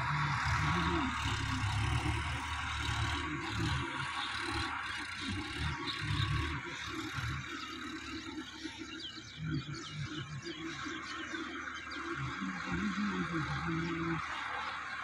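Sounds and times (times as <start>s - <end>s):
birds chirping: 0.0s - 15.0s
distant tractor engine rumbling: 0.0s - 15.0s.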